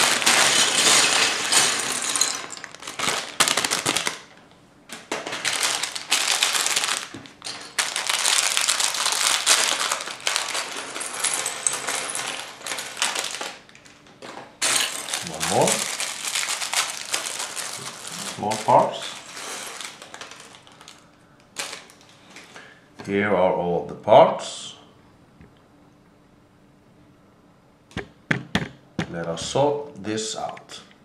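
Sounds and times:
plastic bags crinkling: 0.0s - 22.5s.

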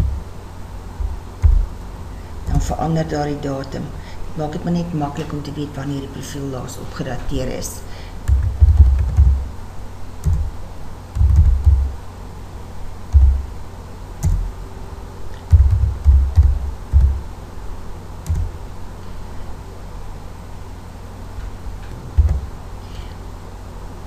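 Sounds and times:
keyboard typing dull thumps: 1.0s - 1.8s, 8.2s - 9.6s, 10.2s - 12.0s, 13.1s - 13.6s, 14.2s - 14.6s, 15.4s - 17.3s, 18.2s - 18.6s, 21.8s - 22.6s.

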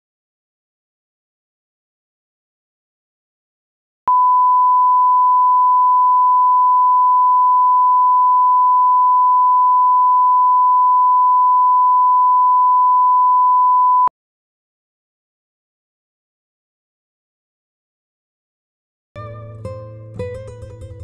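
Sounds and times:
steady test tone beep: 4.1s - 14.1s.

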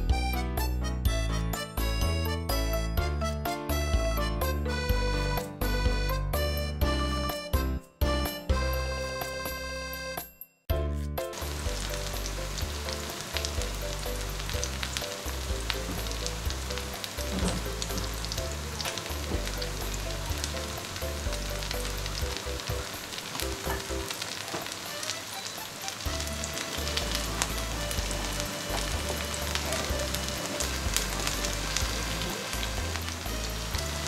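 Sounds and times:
soft background music: 0.0s - 34.0s
oil sizzling with crackles: 11.3s - 34.0s.

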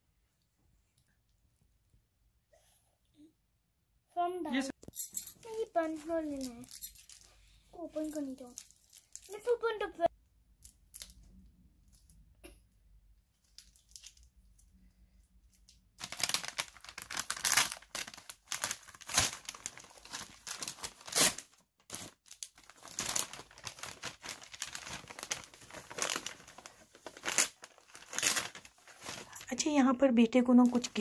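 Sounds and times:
paper rustling and tearing: 16.0s - 29.4s.

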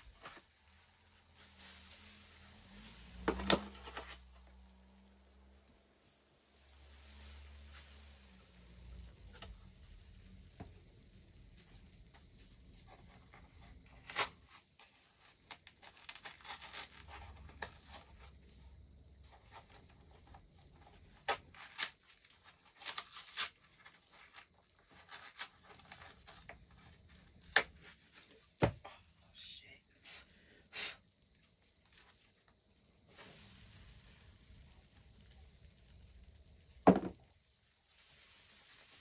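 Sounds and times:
cardboard tearing: 13.6s - 18.3s, 19.8s - 28.2s.

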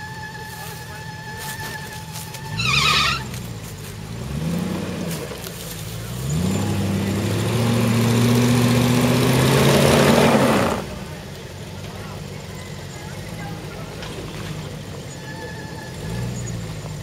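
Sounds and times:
tyres spinning in mud: 0.0s - 17.0s
engine revving hard: 1.4s - 11.3s.

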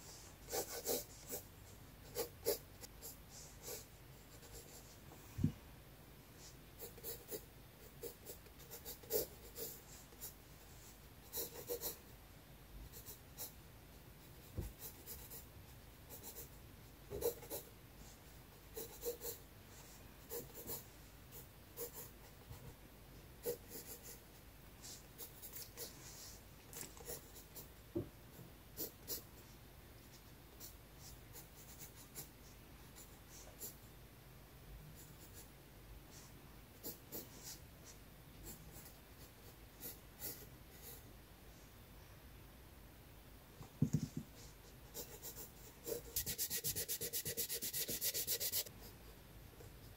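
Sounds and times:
pencil scratching on paper: 0.0s - 5.0s, 6.4s - 12.0s, 14.2s - 15.5s, 16.1s - 22.8s, 23.4s - 27.7s, 44.4s - 49.0s.

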